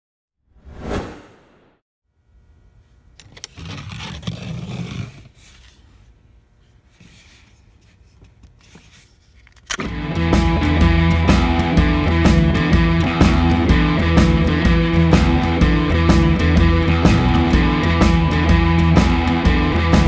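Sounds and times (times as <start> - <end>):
plastic sheath rubbing and sliding: 3.2 - 5.9
loud rock music with guitar: 9.8 - 20.0.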